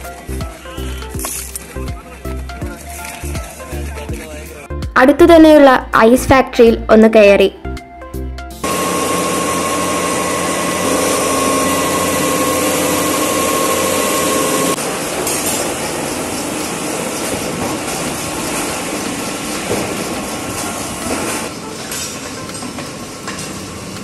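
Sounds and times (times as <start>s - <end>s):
grinding machine: 8.6s - 22.2s
machinery humming: 8.6s - 24.0s.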